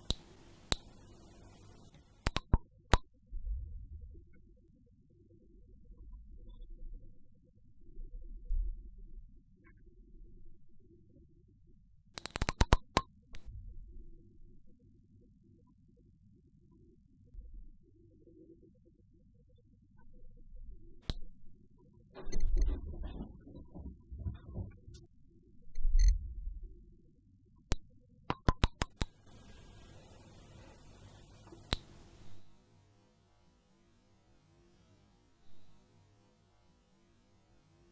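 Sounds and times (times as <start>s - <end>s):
faint high hiss: 8.5s - 12.2s
high-pitched alarm tone: 8.5s - 12.2s.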